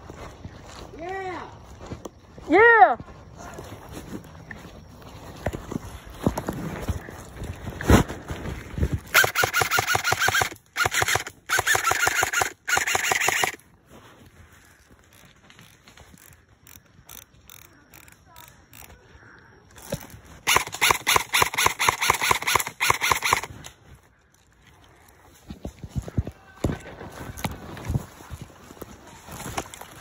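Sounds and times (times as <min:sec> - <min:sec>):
airsoft gun automatic fire: 0:09.1 - 0:13.6, 0:20.4 - 0:23.5.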